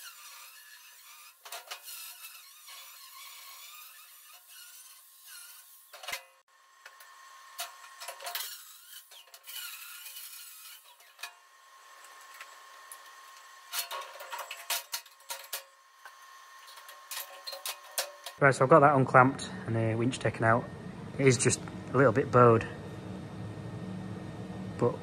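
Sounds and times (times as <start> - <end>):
angle grinder grinding steel: 0.0 - 18.4.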